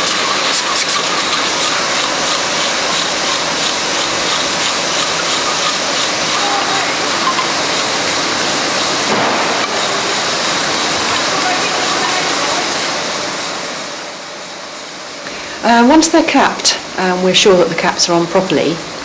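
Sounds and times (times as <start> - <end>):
hissing filling line machine: 0.0 - 16.0.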